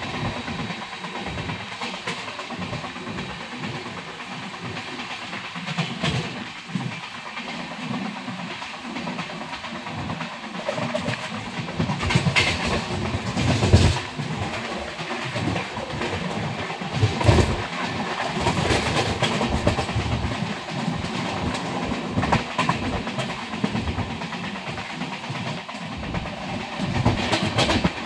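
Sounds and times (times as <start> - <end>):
train wheel and rail noise: 0.0 - 28.0
wheels clacking over rail joints: 0.0 - 28.0.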